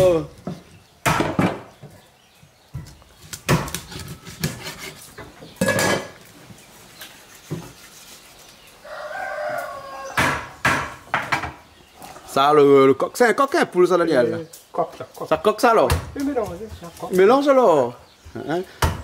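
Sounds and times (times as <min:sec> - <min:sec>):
rooster crowing: 0:08.8 - 0:10.6.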